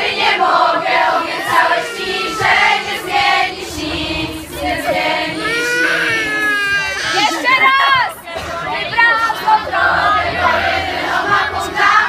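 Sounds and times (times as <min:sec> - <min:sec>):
girls singing together: 0:00.0 - 0:06.3, 0:07.2 - 0:12.0.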